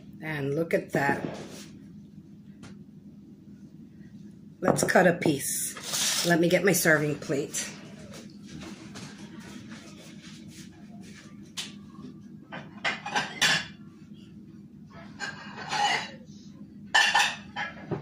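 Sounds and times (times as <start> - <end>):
low steady hum: 0.0 - 18.0
dishes clattering: 12.5 - 13.8, 15.1 - 16.2, 16.9 - 18.0.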